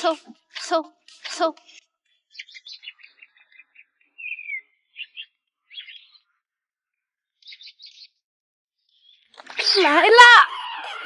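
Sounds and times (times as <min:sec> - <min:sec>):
high bird chirps: 0:01.2 - 0:06.4, 0:07.4 - 0:08.2, 0:08.9 - 0:11.0
small bird calling: 0:01.2 - 0:06.4, 0:07.4 - 0:08.2, 0:08.9 - 0:11.0.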